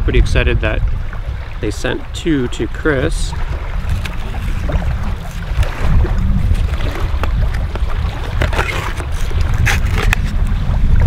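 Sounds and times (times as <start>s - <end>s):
wind buffeting microphone: 0.0s - 11.0s
plastic blister pack crinkling: 8.3s - 10.3s.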